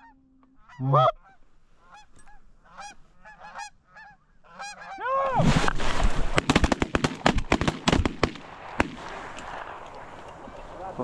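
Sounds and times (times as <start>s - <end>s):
geese honking: 0.0s - 5.2s
shotgun blasts: 5.5s - 9.7s.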